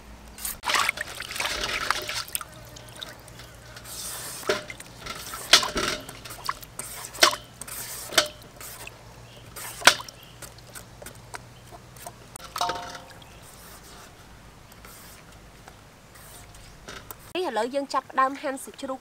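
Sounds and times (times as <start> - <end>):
water dripping into steel basin: 0.6 - 11.8, 12.4 - 13.5.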